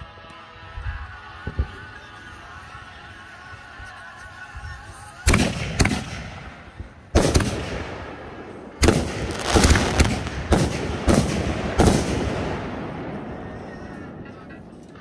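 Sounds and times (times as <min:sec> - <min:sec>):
fireworks bangs: 0:05.3 - 0:14.6.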